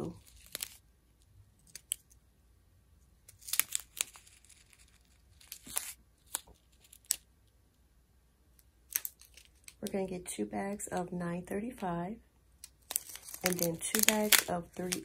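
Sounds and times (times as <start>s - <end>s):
plastic bags crinkling: 12.7s - 15.0s.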